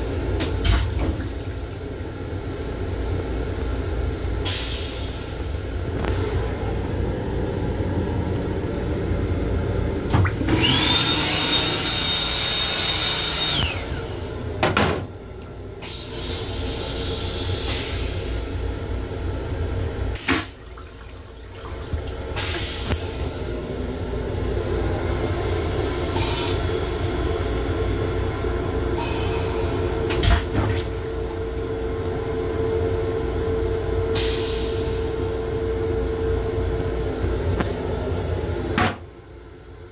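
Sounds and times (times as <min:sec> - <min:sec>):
electric railcar rumble: 0:22.4 - 0:30.2.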